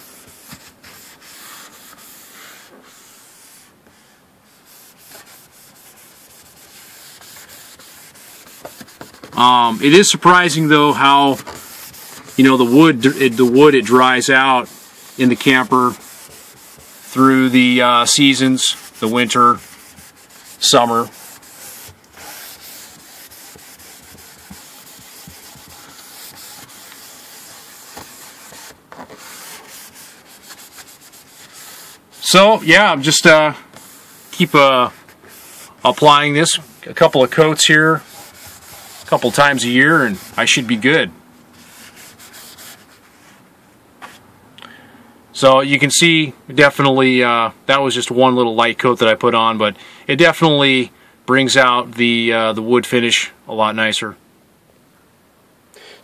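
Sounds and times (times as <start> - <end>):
paper towel rubbing wood: 0.0 - 40.9, 41.5 - 43.4.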